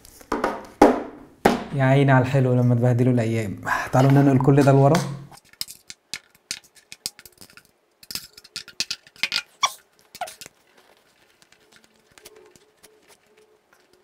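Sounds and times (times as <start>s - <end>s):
squeaky chirps: 9.4s - 10.5s.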